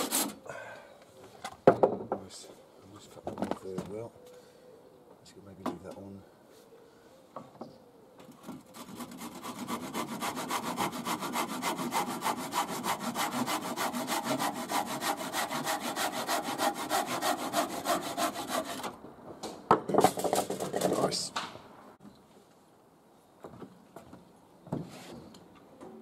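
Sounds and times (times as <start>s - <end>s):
handsaw cutting timber: 8.7s - 18.9s.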